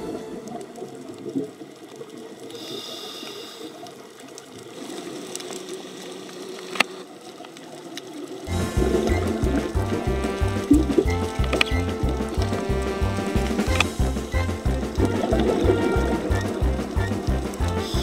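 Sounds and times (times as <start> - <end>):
underwater hiss: 2.4 - 4.1, 17.8 - 18.0
sharp clicks and crackles: 3.8 - 8.5, 10.8 - 12.8, 13.4 - 14.0.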